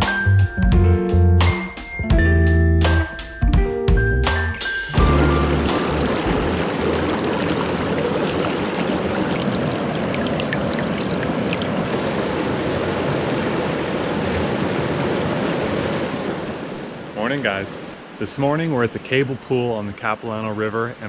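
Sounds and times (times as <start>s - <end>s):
river rushing over boulders: 5.0s - 20.6s.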